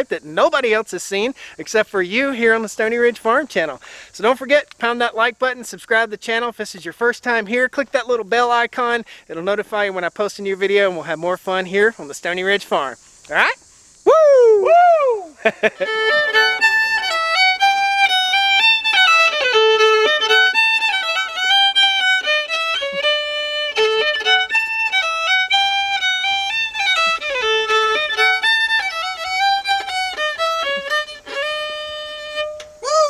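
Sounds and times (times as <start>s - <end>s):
solo fiddle playing a quick tune: 15.7s - 33.0s.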